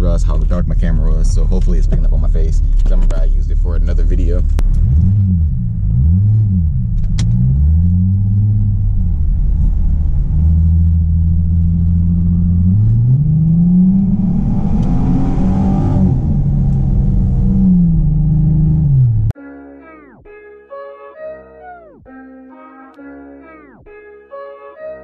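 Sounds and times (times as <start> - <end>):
car engine revving: 0.0 - 19.4.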